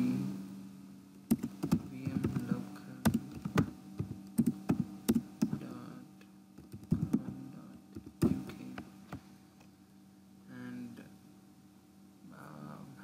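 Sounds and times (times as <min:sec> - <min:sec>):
steady low hum: 0:00.0 - 0:13.0
computer keyboard typing: 0:01.3 - 0:05.6, 0:06.6 - 0:07.3, 0:08.0 - 0:08.4.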